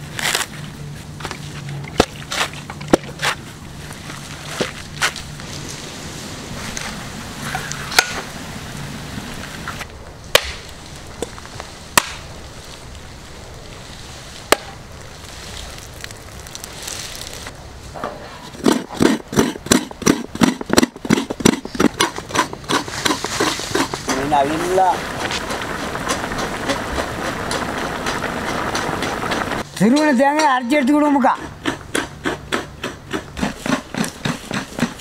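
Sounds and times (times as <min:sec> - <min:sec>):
coconut scraping: 0:00.0 - 0:05.9, 0:18.2 - 0:35.0
cleaver striking coconut: 0:10.3 - 0:10.7, 0:11.9 - 0:12.3, 0:14.5 - 0:14.8.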